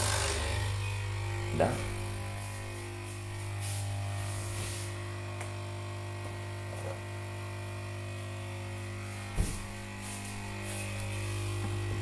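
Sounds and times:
electrical hum: 0:00.0 - 0:12.0
short thump: 0:09.3 - 0:09.7.

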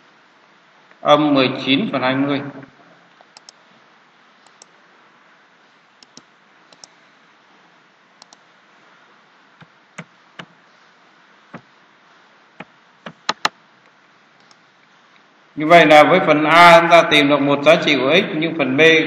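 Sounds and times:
steady low hiss: 0:00.0 - 0:19.0
mouse and keyboard clicks: 0:03.3 - 0:03.6, 0:04.5 - 0:04.7, 0:06.0 - 0:07.0, 0:08.2 - 0:08.4, 0:12.6 - 0:13.5.

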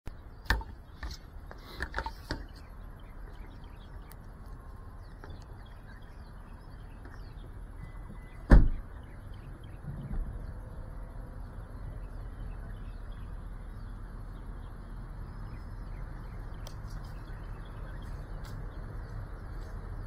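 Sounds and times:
steady low rumble: 0:00.1 - 0:20.0
faint bird chirps: 0:02.1 - 0:20.0
loud thump: 0:08.5 - 0:08.9.

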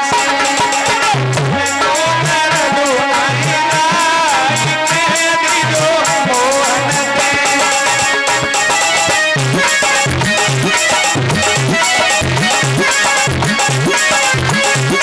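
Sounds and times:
hand drum beat: 0:00.0 - 0:15.0
melody instrument bending pitch: 0:00.0 - 0:15.0
percussion: 0:00.0 - 0:15.0.

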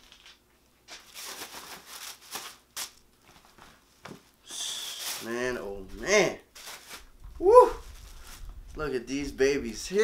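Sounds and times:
paper rustling and crinkling: 0:00.0 - 0:04.3, 0:04.9 - 0:07.1, 0:07.8 - 0:08.7.

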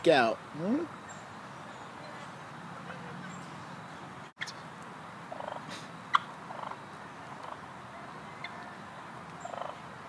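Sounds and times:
turkey cluck: 0:04.4 - 0:04.6, 0:05.3 - 0:09.8
turkey hens purring: 0:05.3 - 0:07.7, 0:09.4 - 0:09.8.

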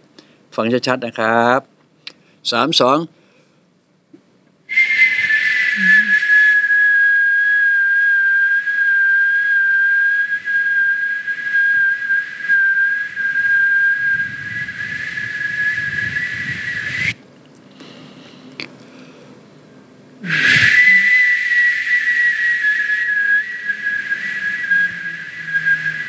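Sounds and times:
man whistling tone with mouth: 0:04.7 - 0:17.2, 0:20.2 - 0:26.0.

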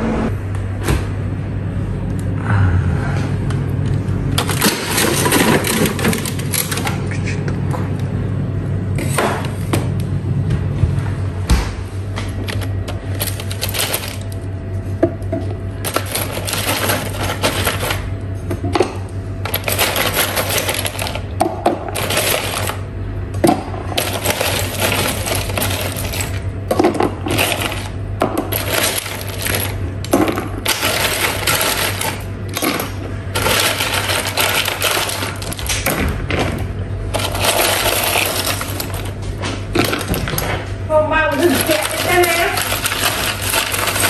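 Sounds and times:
ice cubes clattering in plastic container: 0:04.4 - 0:07.0, 0:13.2 - 0:14.3, 0:15.8 - 0:18.0, 0:19.5 - 0:22.8, 0:24.0 - 0:36.5, 0:37.1 - 0:39.2, 0:41.3 - 0:44.0.

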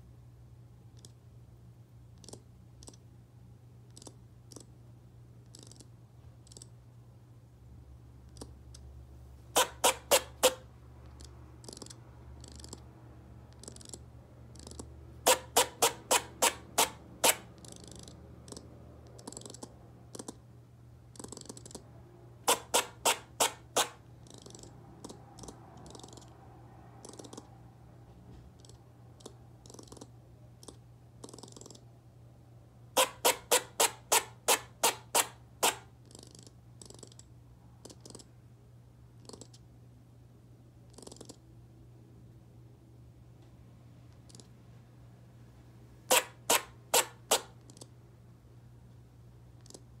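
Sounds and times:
squirrel barking: 0:09.5 - 0:20.4, 0:22.4 - 0:26.4, 0:32.9 - 0:37.0, 0:46.1 - 0:47.9.

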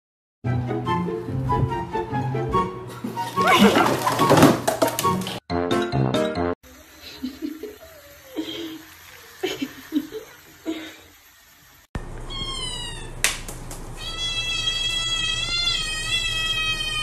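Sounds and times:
running tap: 0:07.0 - 0:11.9
kitten meowing loudly: 0:12.3 - 0:13.2, 0:14.0 - 0:17.0
kitten mewing: 0:12.3 - 0:13.2, 0:14.0 - 0:17.0.

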